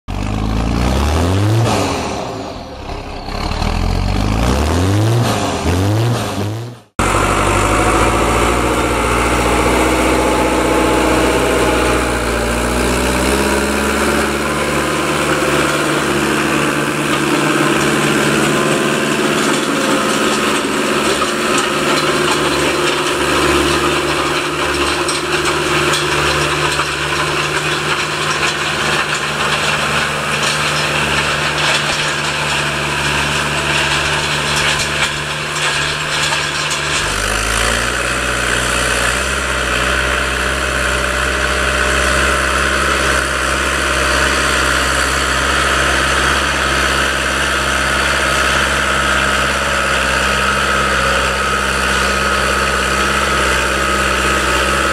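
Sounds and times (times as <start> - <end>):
tractor diesel engine droning: 0.1 - 54.9
engine revving with rising whine: 0.3 - 31.4.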